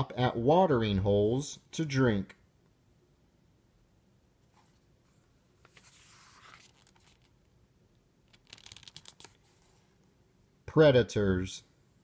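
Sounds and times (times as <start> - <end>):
book page turning: 4.5 - 7.5, 8.2 - 10.0.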